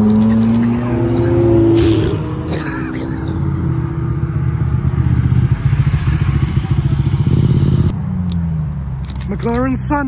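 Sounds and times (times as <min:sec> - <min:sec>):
sports car engine approaching: 0:00.0 - 0:09.4.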